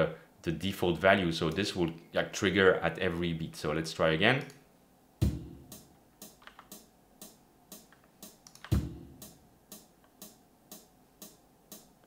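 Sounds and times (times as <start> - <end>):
kick drum: 5.2 - 5.8, 8.7 - 9.3
hi-hat ticking: 5.2 - 12.0.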